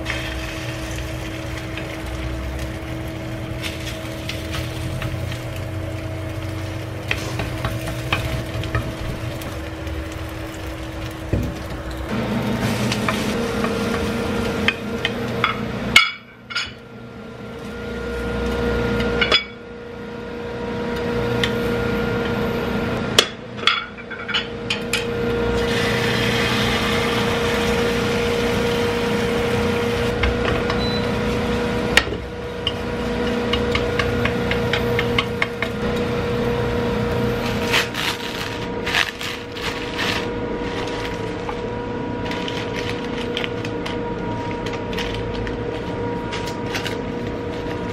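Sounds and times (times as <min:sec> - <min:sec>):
egg batter sizzling: 0:00.0 - 0:15.7, 0:25.4 - 0:30.2
steady hum: 0:00.0 - 0:47.9.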